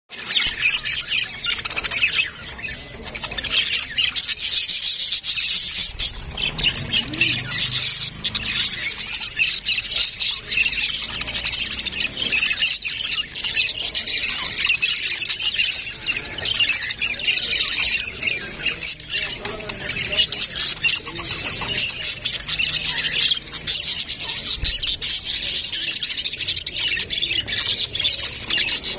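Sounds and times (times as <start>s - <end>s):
budgerigars chattering: 0.1s - 28.9s.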